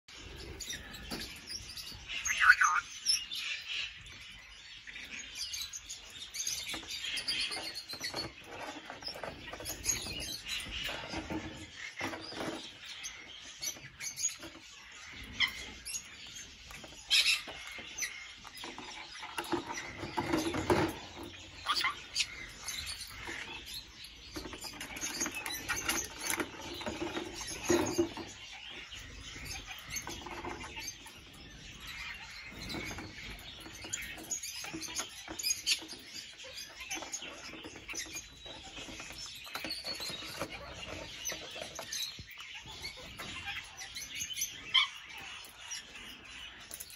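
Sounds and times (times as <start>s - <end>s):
birds chirping: 0.0s - 46.9s
plastic jugs knocking and scraping: 6.8s - 13.0s, 18.6s - 21.7s, 23.1s - 28.9s.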